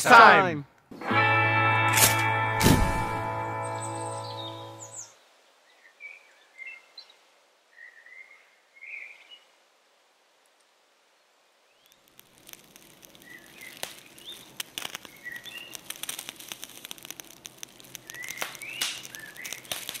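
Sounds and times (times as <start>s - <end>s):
steady crackle: 1.9s - 3.4s, 11.8s - 20.0s
birds chirping: 3.1s - 5.2s, 13.2s - 15.9s, 18.0s - 19.8s.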